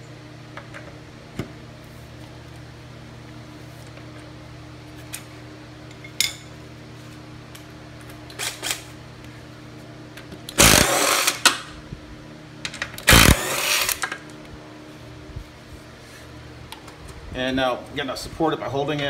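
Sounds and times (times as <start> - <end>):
impact wrench hammering: 10.6 - 11.6, 13.1 - 14.1.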